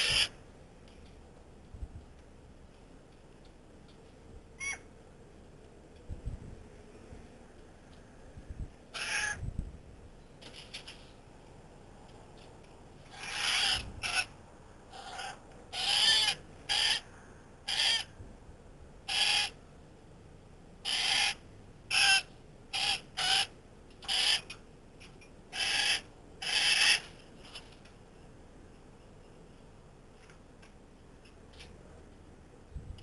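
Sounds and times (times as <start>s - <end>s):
birds making harsh calls: 0.0s - 0.4s, 4.6s - 4.9s, 9.0s - 9.4s, 13.0s - 17.1s, 17.7s - 18.1s, 19.1s - 19.6s, 20.8s - 24.6s, 25.5s - 27.7s.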